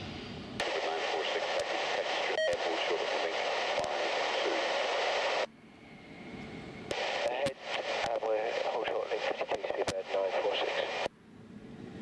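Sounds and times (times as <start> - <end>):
faint radio voice: 0.6 - 4.9, 7.0 - 11.1
radio static hiss: 0.6 - 5.5, 6.9 - 11.1.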